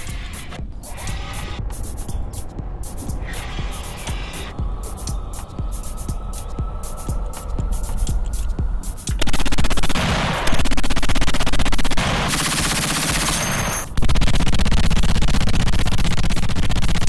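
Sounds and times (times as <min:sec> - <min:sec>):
machine gun firing: 0:09.2 - 0:17.0.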